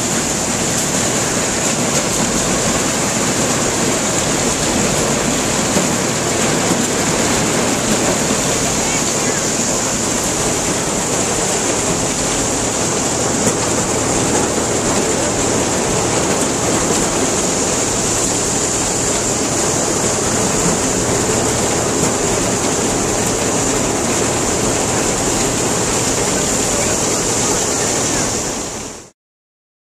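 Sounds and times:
corn grinder rushing: 0.0 - 29.1
tractor engine running: 0.0 - 29.1.

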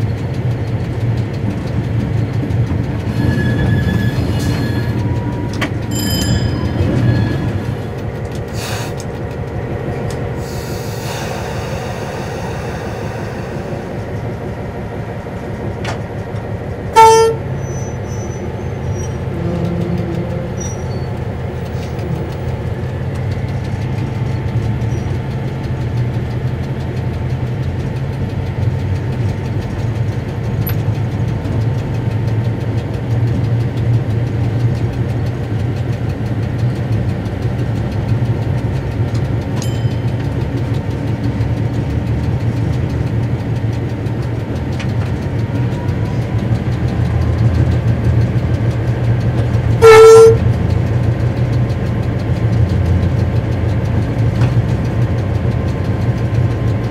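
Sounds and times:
locomotive engine drone: 0.0 - 56.9
locomotive horn blast: 16.9 - 17.7, 49.8 - 50.6.

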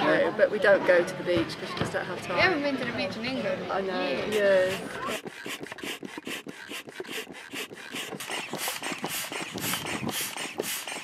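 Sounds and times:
foot pump air puffs and creaks: 4.3 - 11.0.

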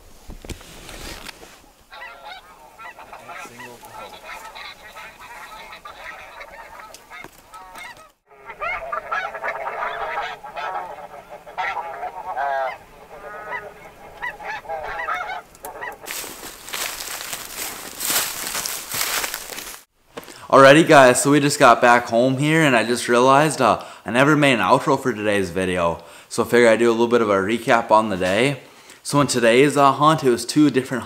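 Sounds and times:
snow geese honking: 1.4 - 19.8.

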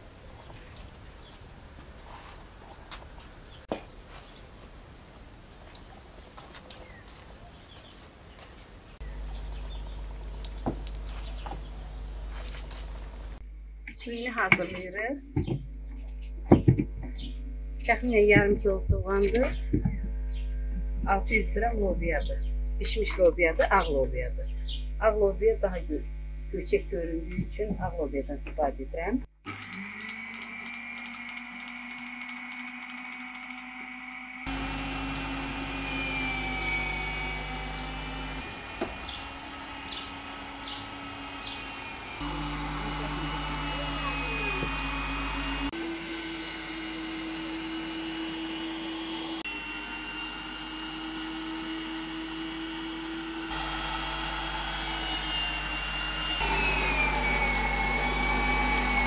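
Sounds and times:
meat grinder motor whining: 29.4 - 59.0.

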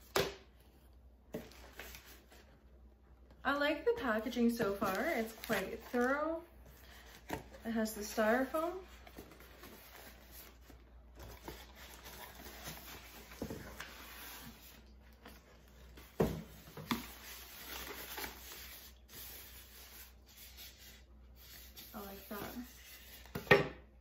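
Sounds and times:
cardboard and styrofoam rustling: 4.5 - 23.4.

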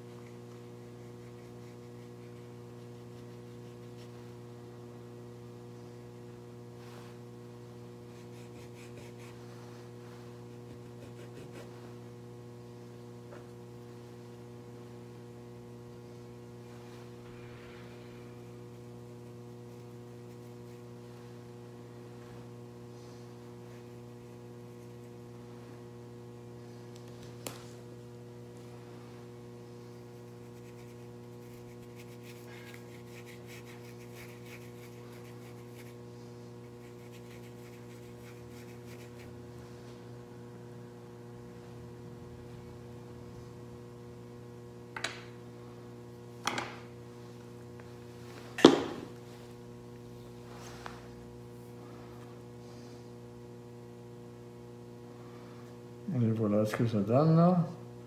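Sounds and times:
electrical mains hum: 0.0 - 58.0
paintbrush strokes on paper: 8.0 - 12.0, 29.9 - 39.3.

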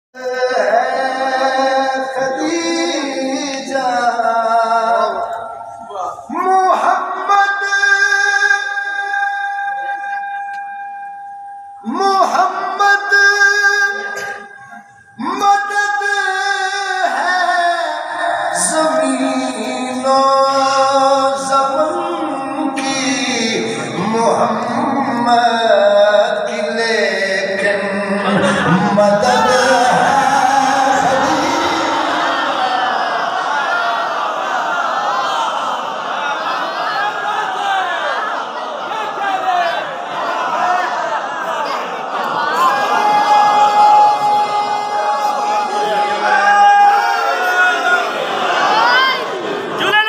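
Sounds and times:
man chanting: 0.2 - 11.1, 11.8 - 32.8.

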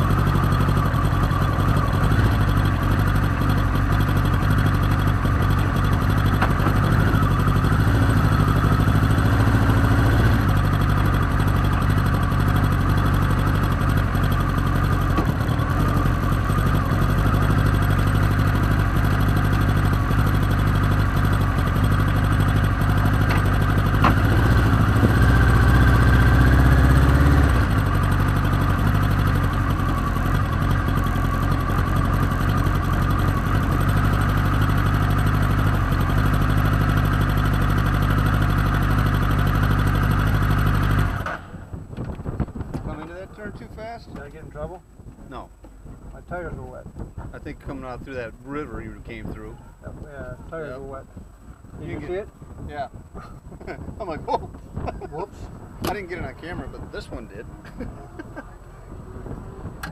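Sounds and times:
race car engine idling: 0.0 - 41.2.

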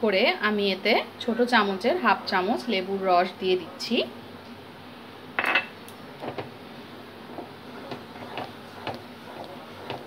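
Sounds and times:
wooden spoon stirring in saucepan: 6.1 - 10.0.

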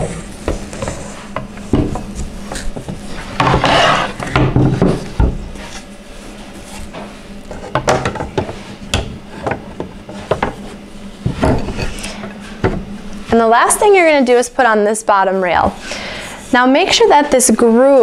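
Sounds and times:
panels scraping: 0.0 - 14.4.

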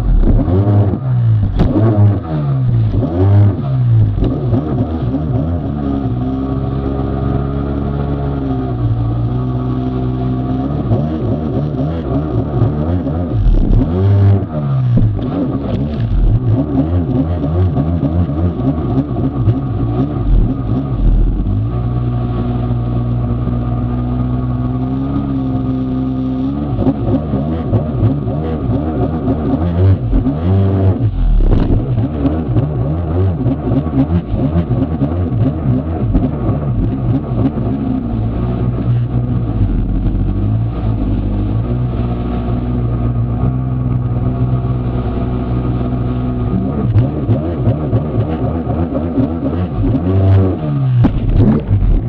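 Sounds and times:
jet ski engine revving: 0.0 - 52.0
water noise: 50.7 - 52.0.

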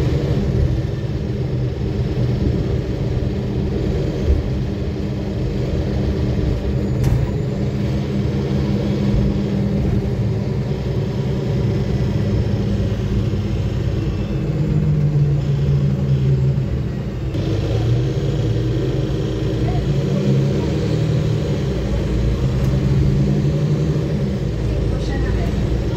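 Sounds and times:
bus diesel engine drone: 0.0 - 25.9
road rumble: 0.0 - 25.9.

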